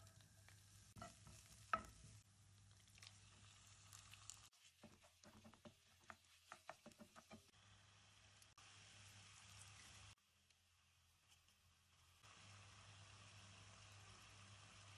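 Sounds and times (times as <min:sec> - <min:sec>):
food frying in oil: 0:00.0 - 0:14.9
spatula tapping against pan: 0:05.2 - 0:07.5.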